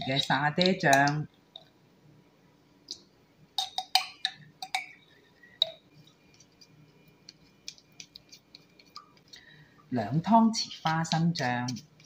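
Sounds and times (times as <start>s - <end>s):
metal spoon clinking on ceramic bowl: 3.6s - 5.0s.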